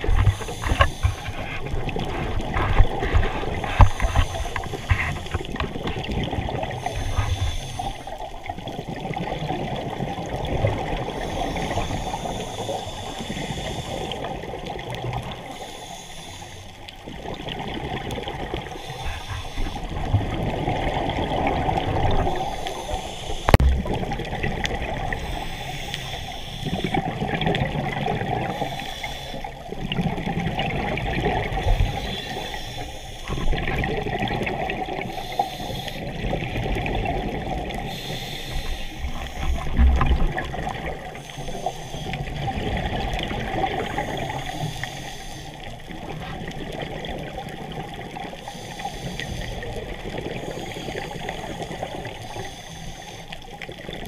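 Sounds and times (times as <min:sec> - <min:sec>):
diver breathing through regulator: 0:00.0 - 0:05.7, 0:06.6 - 0:08.3, 0:11.0 - 0:14.4, 0:15.4 - 0:16.8, 0:18.6 - 0:21.0, 0:22.1 - 0:23.8, 0:25.0 - 0:27.2, 0:28.2 - 0:29.7, 0:31.3 - 0:33.9, 0:34.9 - 0:36.9, 0:37.6 - 0:42.6, 0:43.6 - 0:46.4, 0:48.4 - 0:53.6
bubbles rushing and gurgling: 0:00.0 - 0:15.8, 0:16.7 - 0:52.6, 0:53.3 - 0:54.0.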